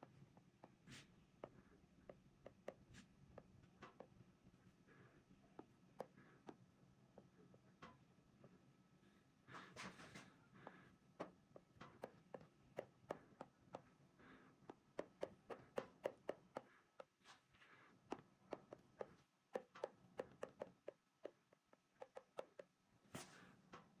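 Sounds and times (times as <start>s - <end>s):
stylus tapping on glass screen: 15.0s - 17.2s.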